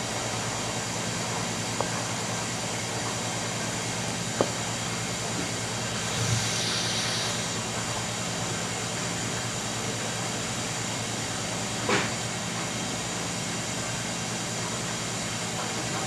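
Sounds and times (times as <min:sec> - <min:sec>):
exhaust hood fan running: 0:00.0 - 0:16.0
brief hiss: 0:05.9 - 0:07.6.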